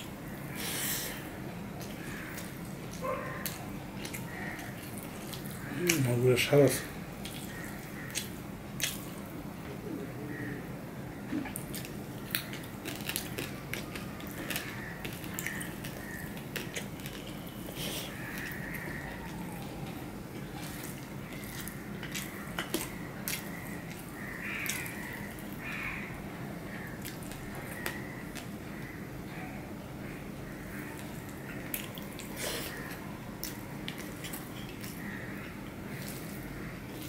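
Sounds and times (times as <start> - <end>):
chewing and mouth clicks: 1.8 - 6.1, 7.2 - 9.3, 11.4 - 25.7, 27.0 - 28.6, 31.0 - 37.0.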